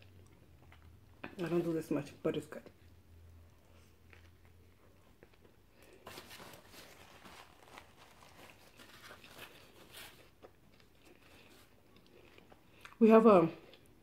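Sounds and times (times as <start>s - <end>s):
soft chewing: 0.0s - 1.7s, 2.6s - 14.0s
paper napkin crinkling: 5.9s - 11.7s.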